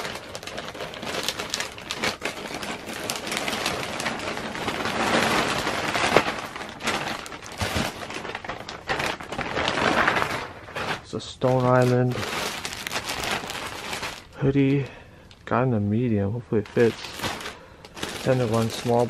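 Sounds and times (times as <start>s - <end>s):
tissue paper crinkling: 0.0s - 15.0s, 16.6s - 19.0s
plastic bag rustling: 0.0s - 19.0s.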